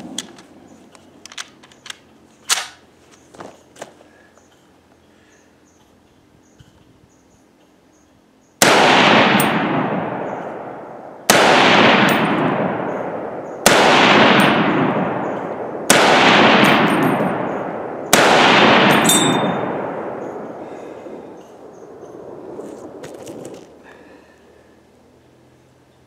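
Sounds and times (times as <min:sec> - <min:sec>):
metal clip ejecting ping: 0:01.3 - 0:02.8, 0:18.9 - 0:19.6
rifle shots echoing: 0:08.6 - 0:23.8.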